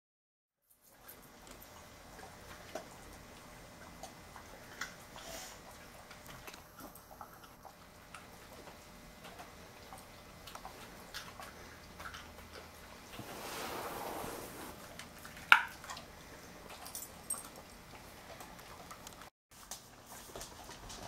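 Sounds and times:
dogs crunching carrots: 0:00.8 - 0:13.1, 0:14.8 - 0:21.0
soft rushing noise: 0:13.1 - 0:14.9.

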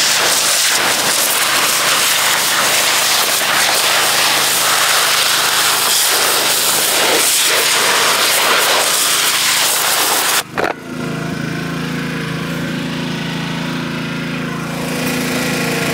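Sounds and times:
pressure washer spray hissing: 0:00.0 - 0:10.5
small engine running: 0:00.0 - 0:15.9.

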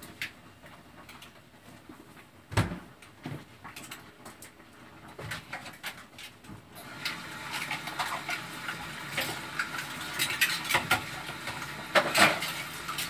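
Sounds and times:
water running into sink: 0:06.8 - 0:13.0
plates and cutlery clattering: 0:10.1 - 0:11.2, 0:11.9 - 0:13.0.

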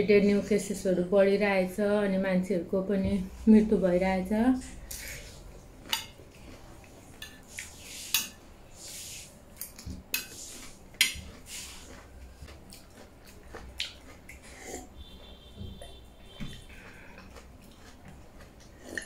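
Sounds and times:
chewing: 0:04.6 - 0:07.8, 0:09.6 - 0:19.0.

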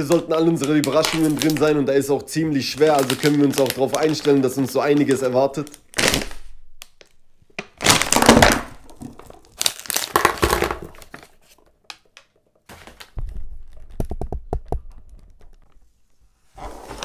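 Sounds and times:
plastic foil bag crinkling and tearing: 0:00.0 - 0:07.2, 0:07.8 - 0:11.6
small objects knocking onto table: 0:08.1 - 0:11.3.

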